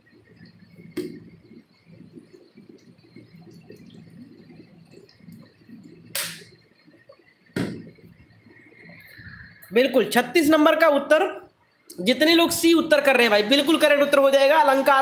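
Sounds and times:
faint low background noise: 0.0 - 15.0
sharp knocks: 7.6 - 7.9.

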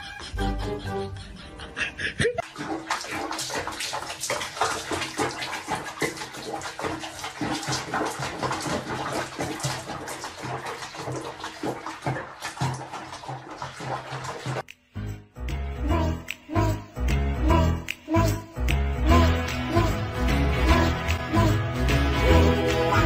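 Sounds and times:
bathwater splashing: 2.4 - 14.7.

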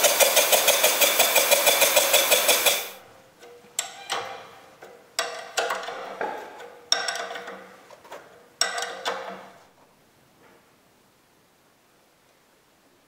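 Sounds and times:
engine running: 0.0 - 3.0
ratchet wrench clicking: 0.0 - 3.0.

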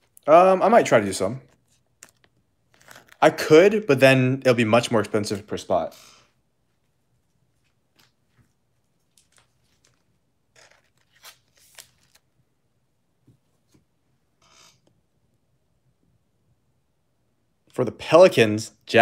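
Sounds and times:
cards and packaging rustling: 1.6 - 3.4, 7.5 - 12.4.

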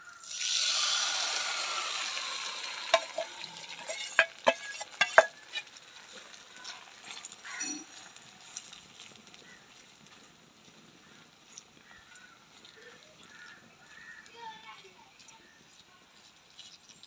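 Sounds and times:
batter sizzling in hot oil: 0.0 - 17.0
metal spoon clinking on bowl: 2.9 - 5.6.

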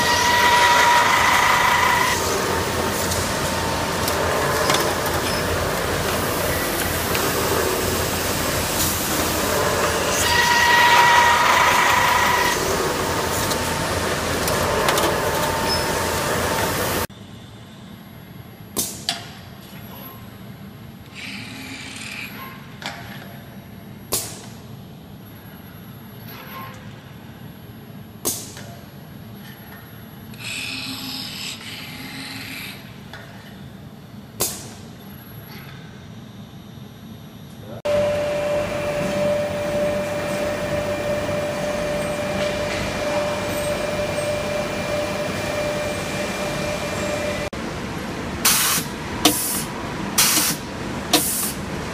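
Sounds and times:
assembly machine running: 0.0 - 17.1.

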